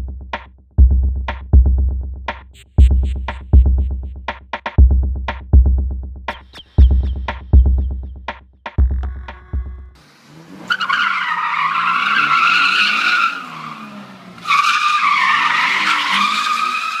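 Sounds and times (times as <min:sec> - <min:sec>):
car engine running: 0:06.8 - 0:10.7
car tyres squealing: 0:10.0 - 0:17.0.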